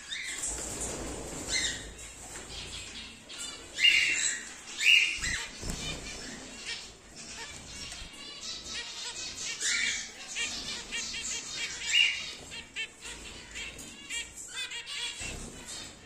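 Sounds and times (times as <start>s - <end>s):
birds chirping: 0.0s - 16.0s
wings fluttering: 0.1s - 8.8s.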